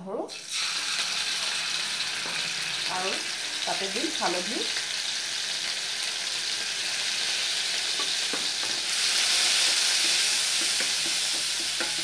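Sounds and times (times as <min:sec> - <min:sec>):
spices sizzling in hot oil: 0:00.3 - 0:12.0
spatula knocking pan: 0:07.9 - 0:08.9, 0:09.6 - 0:12.0.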